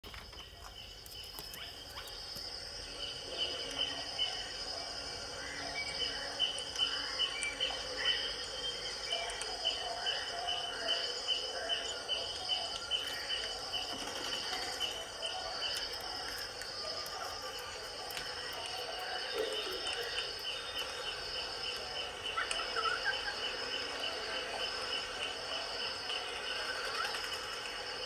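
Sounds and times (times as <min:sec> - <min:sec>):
insect trilling: 0:00.1 - 0:28.0.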